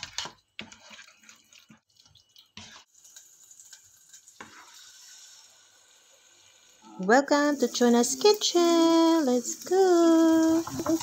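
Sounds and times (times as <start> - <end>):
spoon stirring noodles in pan: 0.0 - 6.5
sauce sizzling in pan: 0.6 - 11.0.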